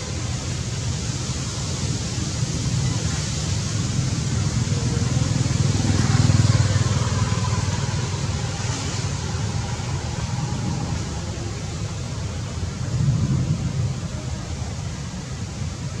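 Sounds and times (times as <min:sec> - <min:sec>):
low rumble: 0:05.2 - 0:16.0.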